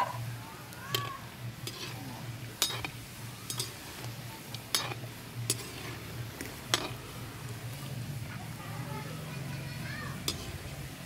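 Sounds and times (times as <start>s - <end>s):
frying oil sizzling: 0.0s - 11.0s
metal spoon clinking on pan: 2.6s - 3.8s, 4.5s - 5.9s, 6.7s - 7.0s, 10.2s - 10.6s.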